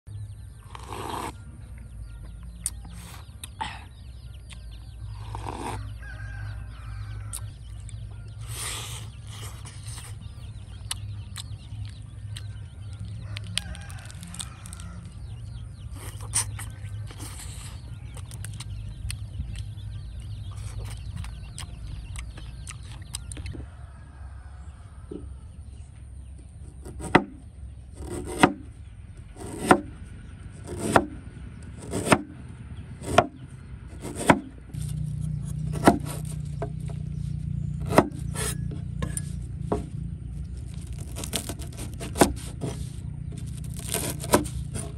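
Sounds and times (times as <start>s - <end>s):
chickens clucking: 0.5s - 28.4s
blade chopping: 26.7s - 27.4s, 28.0s - 28.7s, 29.3s - 30.0s, 30.6s - 32.4s, 33.0s - 44.9s.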